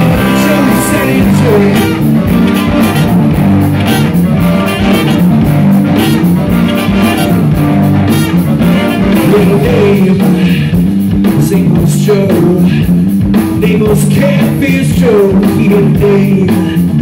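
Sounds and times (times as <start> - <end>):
trumpet: 0.0 - 10.1
saxophone: 0.0 - 10.2
bass guitar: 0.0 - 17.0
electric guitars: 0.0 - 17.0
steady drum beat: 0.0 - 17.0.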